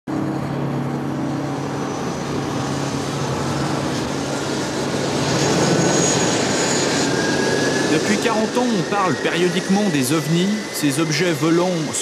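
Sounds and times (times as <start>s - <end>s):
jet engine rush: 0.1s - 12.0s.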